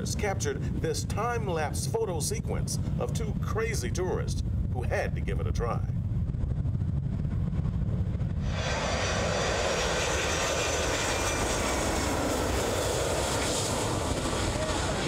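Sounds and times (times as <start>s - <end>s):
jet engines roaring: 0.0s - 5.3s, 5.9s - 15.0s.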